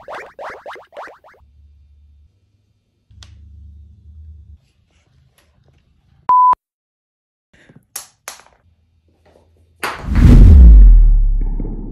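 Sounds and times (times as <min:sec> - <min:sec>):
noisy burst with deep rumble: 0:10.0 - 0:11.9.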